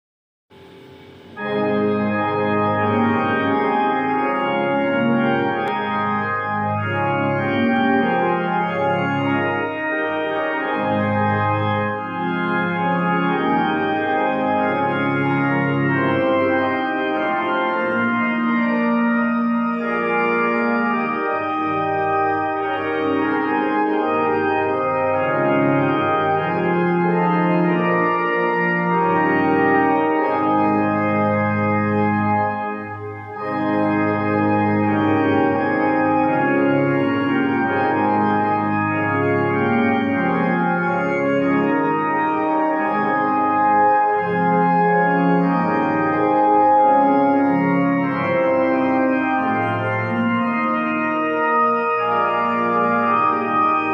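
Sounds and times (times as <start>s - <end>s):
electronic keyboard organ chords: 0.5s - 53.9s.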